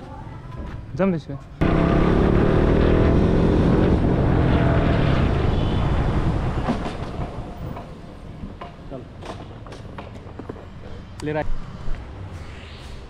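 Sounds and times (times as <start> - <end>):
motorcycle engine: 1.6 - 7.1
wind noise: 2.8 - 8.6.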